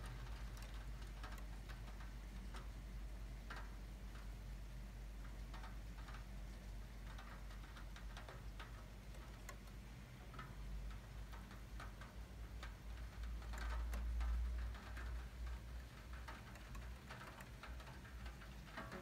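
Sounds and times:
raindrops dripping and tapping: 0.0s - 19.0s.

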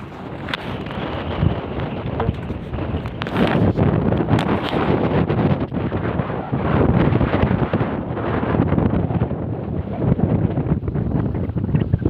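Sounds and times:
storm wind buffeting microphone: 0.0s - 12.0s.

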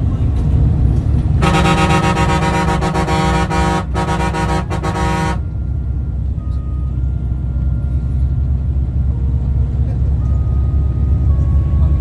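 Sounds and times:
coach engine and tyres rumble: 0.0s - 12.0s
vehicle horn blast: 1.4s - 5.5s.

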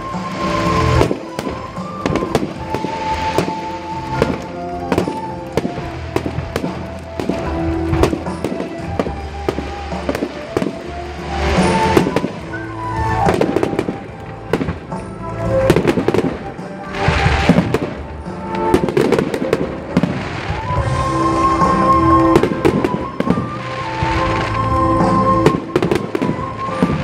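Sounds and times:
fireworks bangs and crackles: 0.0s - 27.0s
music playing: 0.0s - 27.0s.

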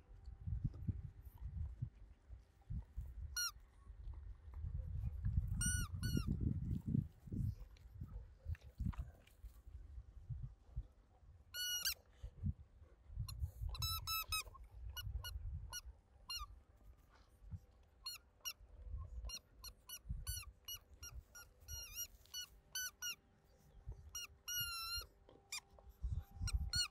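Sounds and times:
squeaky toy squeaking: 3.4s - 3.6s, 5.5s - 6.4s, 11.5s - 12.0s, 13.3s - 16.5s, 18.0s - 18.6s, 19.2s - 23.2s, 24.0s - 26.9s.

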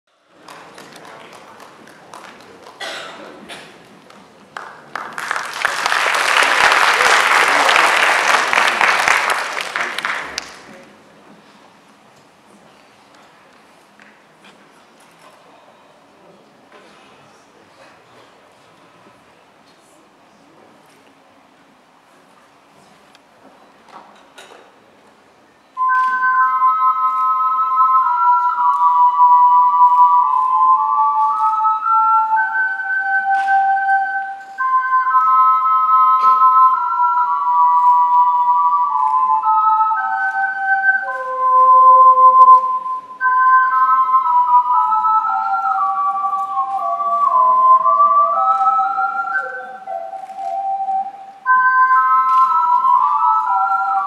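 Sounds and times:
audience murmuring: 0.1s - 54.0s
audience clapping: 0.3s - 11.0s
ocarina duet: 25.5s - 54.0s.

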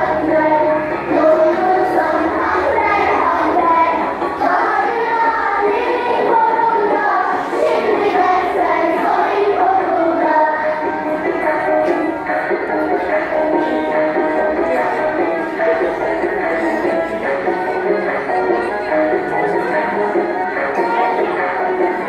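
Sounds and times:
girls singing in chorus: 0.0s - 17.2s.

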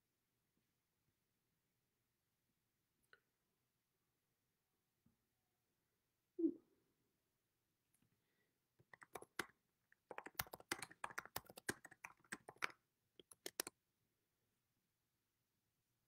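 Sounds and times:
computer keyboard typing: 8.8s - 13.7s.

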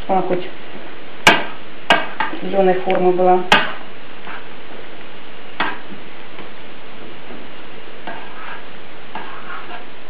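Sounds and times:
spoon scraping: 8.0s - 10.0s.

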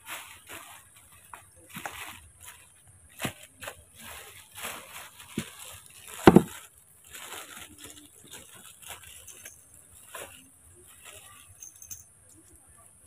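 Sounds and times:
rustling and crackling: 0.0s - 12.7s
loud thump: 6.3s - 6.5s.

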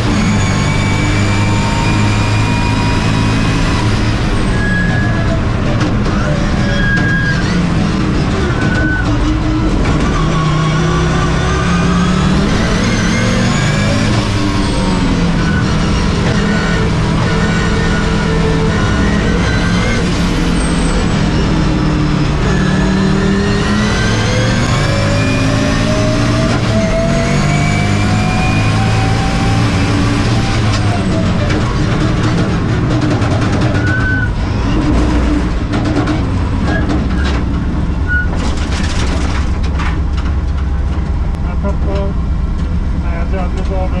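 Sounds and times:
race car engine accelerating: 0.0s - 44.0s
car body knocking and rattling: 5.2s - 10.2s, 30.7s - 43.8s.

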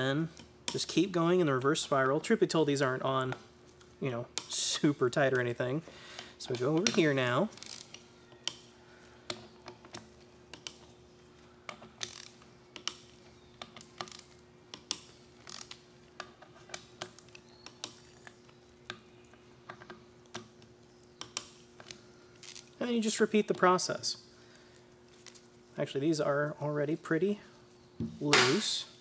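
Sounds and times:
ratchet wrench clicking: 7.6s - 8.7s, 11.7s - 13.1s, 13.7s - 15.8s.

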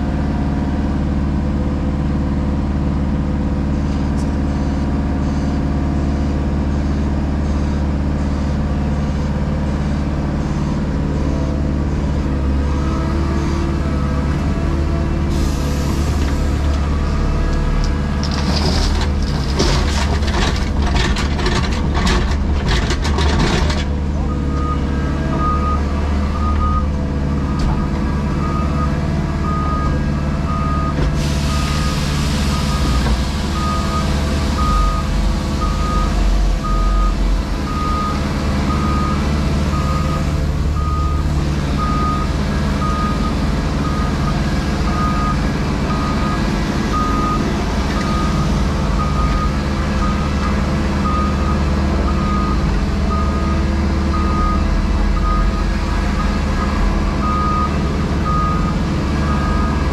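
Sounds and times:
diesel engine running: 0.0s - 59.9s
reversing alarm beeping: 24.3s - 59.9s
hiss: 31.2s - 33.4s.

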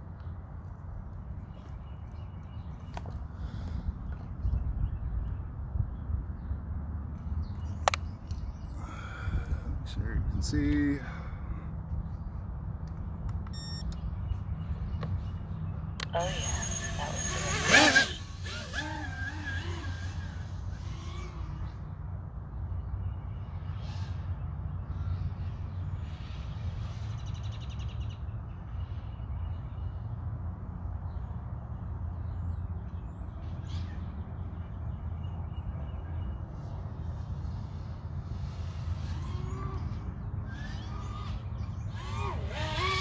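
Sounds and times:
faint high chirps: 13.5s - 14.0s.

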